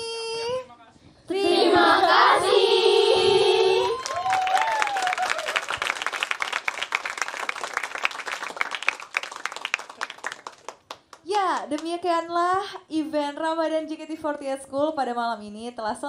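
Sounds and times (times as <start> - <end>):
voices singing over backing track: 1.3 - 4.0
audience applauding: 3.8 - 11.2.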